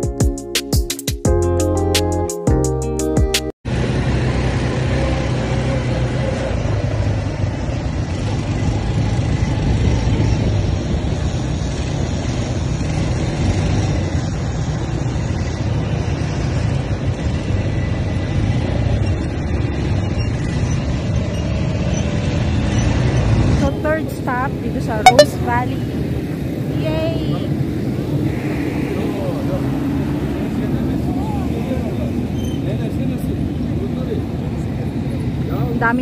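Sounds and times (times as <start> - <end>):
quad bike engine running: 3.7 - 24.5.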